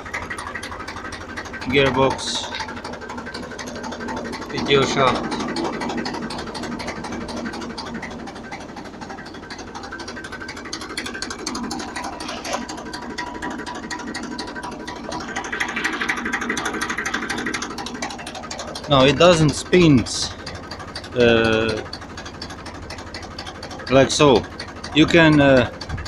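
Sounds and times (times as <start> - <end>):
harvester chain rattling: 0.0 - 26.0
tractor engine running: 0.0 - 26.0.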